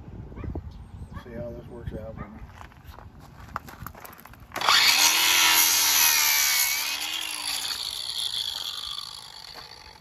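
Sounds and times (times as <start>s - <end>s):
angle grinder cutting metal: 4.6s - 10.0s.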